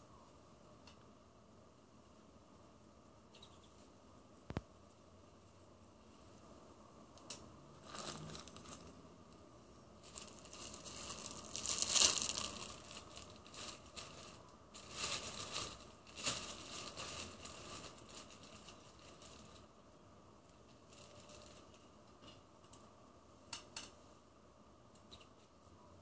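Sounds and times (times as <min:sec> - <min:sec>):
plastic bag crinkling: 0:07.8 - 0:09.0, 0:10.0 - 0:19.7, 0:20.5 - 0:21.9.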